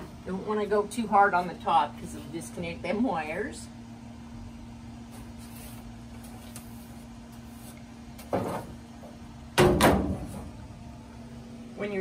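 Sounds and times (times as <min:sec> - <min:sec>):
steady low hum: 0:00.0 - 0:12.0
brush scraping: 0:05.1 - 0:07.9.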